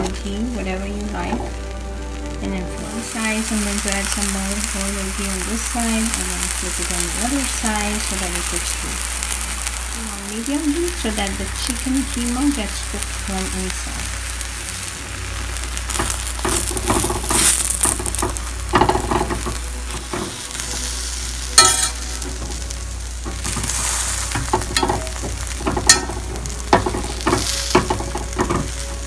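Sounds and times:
paratha sizzling in a pan: 0.0s - 29.0s
metal spatula scraping a pan: 21.6s - 28.8s.

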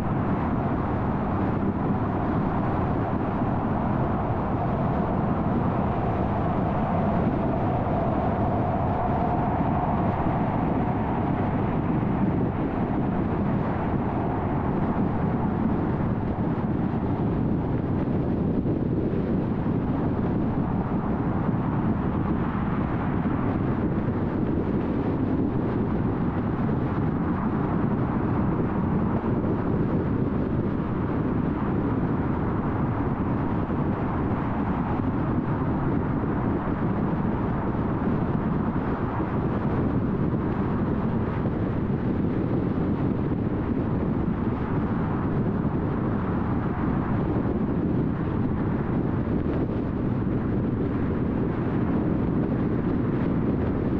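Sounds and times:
faint higher hum: 0.0s - 22.0s
car tyre road noise: 0.0s - 53.9s.

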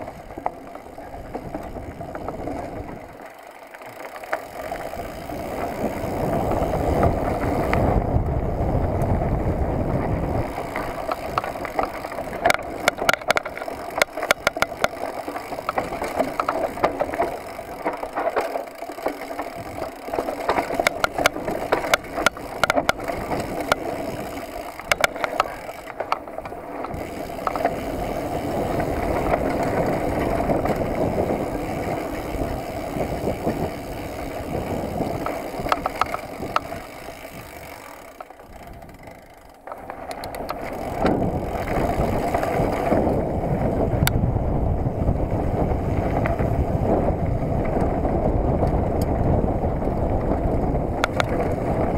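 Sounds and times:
bike rattling over rough ground: 0.0s - 51.9s
bike tyre noise on dirt: 0.0s - 51.9s
wind rush over microphone: 4.8s - 17.8s, 26.8s - 37.8s, 40.4s - 51.9s.

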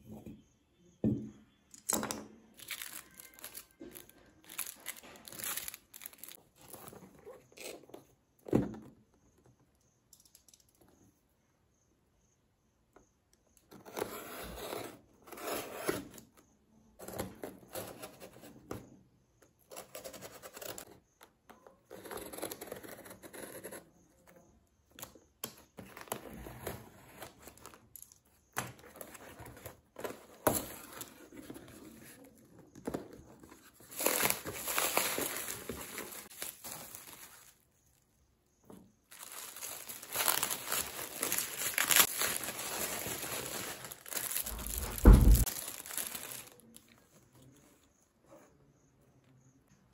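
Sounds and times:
plastic and bubble wrap crinkling: 2.6s - 7.7s, 33.4s - 38.0s, 39.0s - 47.1s.

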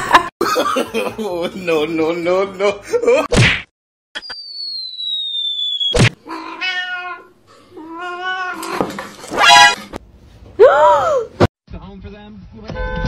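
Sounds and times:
cat meowing: 6.2s - 8.8s.

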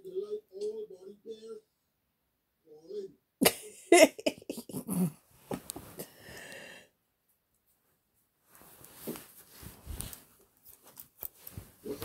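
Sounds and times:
man laughing and snorting: 3.4s - 5.2s.

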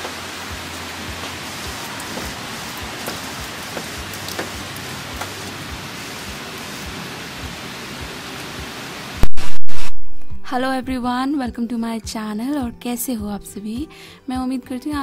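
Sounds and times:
heavy rain pouring: 0.0s - 10.9s
raindrop taps: 1.1s - 5.6s.

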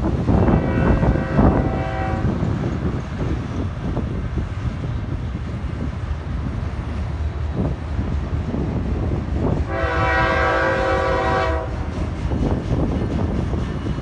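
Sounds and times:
freight train rumbling past: 0.0s - 14.0s
locomotive air horn chord: 0.4s - 2.4s, 9.6s - 11.9s.

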